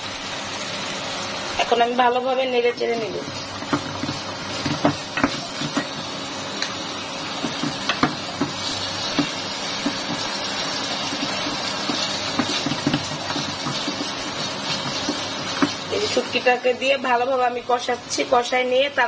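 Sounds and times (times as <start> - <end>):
food sizzling in a pot: 0.0 - 19.0
wooden spatula knocking pot: 3.6 - 6.0, 7.4 - 10.3, 11.0 - 15.9.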